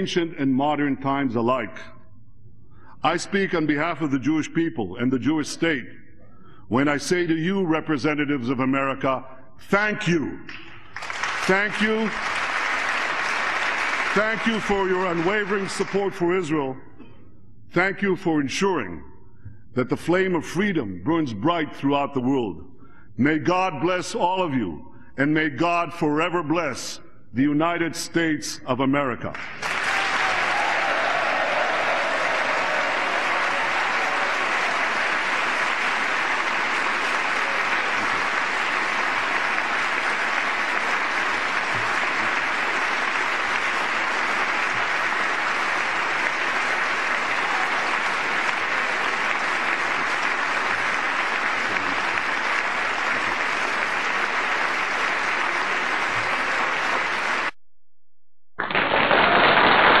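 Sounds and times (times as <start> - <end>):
large audience applauding: 10.8 - 16.0, 29.4 - 57.6, 58.6 - 60.0.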